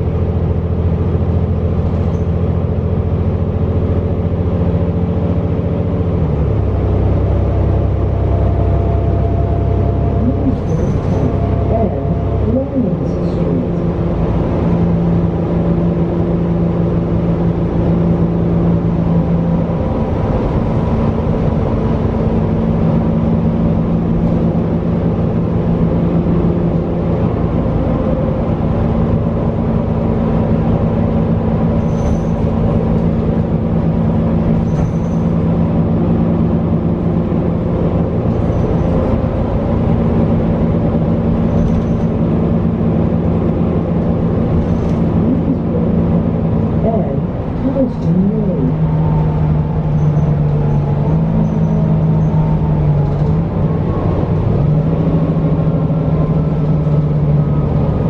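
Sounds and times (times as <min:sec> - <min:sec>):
bus diesel engine drone: 0:00.0 - 0:58.0
road noise: 0:00.0 - 0:58.0
light clicks or rattles: 0:41.4 - 0:42.2.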